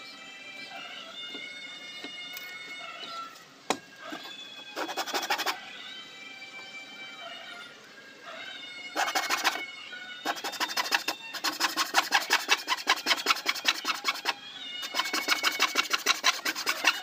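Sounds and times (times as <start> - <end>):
hacksaw sawing: 4.8 - 5.6, 9.0 - 9.6, 10.2 - 17.0.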